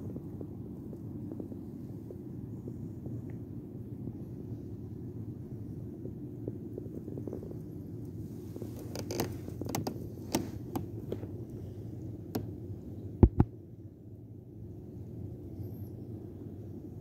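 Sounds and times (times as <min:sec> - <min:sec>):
steady low rumble: 0:00.0 - 0:17.0
loud knocks: 0:13.2 - 0:13.5.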